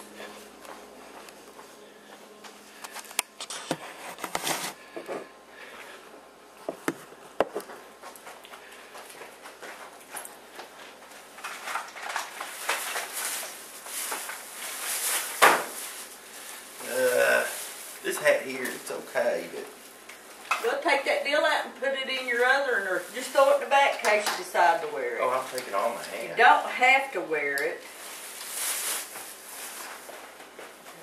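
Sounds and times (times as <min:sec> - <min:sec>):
plastic bag rustling: 0:10.7 - 0:20.8, 0:21.9 - 0:27.0, 0:27.7 - 0:31.0.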